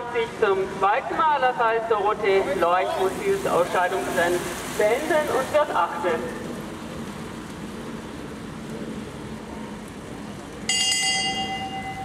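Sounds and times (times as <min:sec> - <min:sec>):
low outdoor background: 0:00.0 - 0:12.0
bell ringing: 0:10.7 - 0:12.0.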